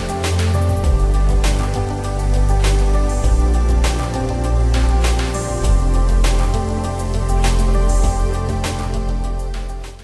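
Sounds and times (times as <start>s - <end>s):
music with sustained tones: 0.0s - 10.0s.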